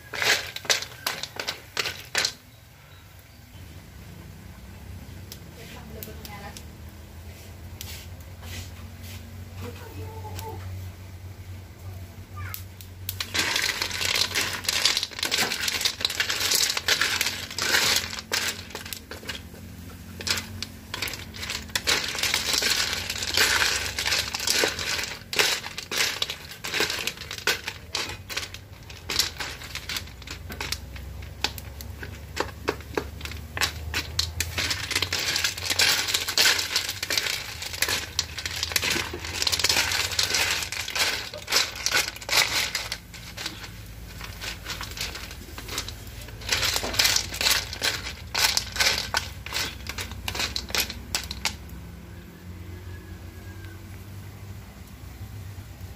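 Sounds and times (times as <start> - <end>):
shells clattering against metal pan: 0.0 - 2.4, 13.1 - 51.8.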